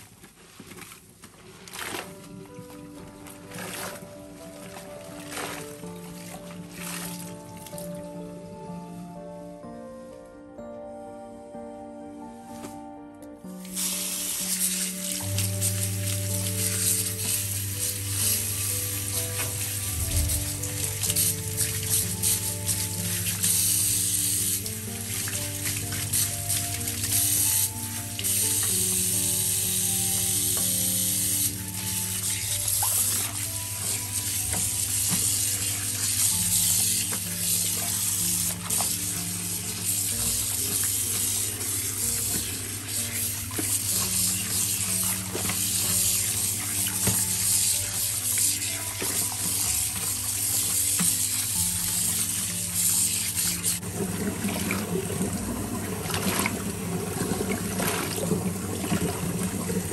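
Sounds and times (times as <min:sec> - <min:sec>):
sweater swished in water: 0:00.1 - 0:07.7
background music with held notes: 0:00.2 - 0:59.9
tap water running into a sink: 0:13.6 - 0:59.9.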